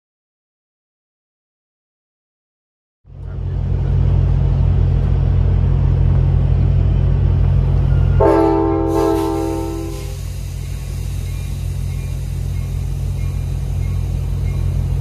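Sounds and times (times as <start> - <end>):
diesel locomotive engine rumble: 3.1 - 15.0
train horn blast: 8.0 - 10.2.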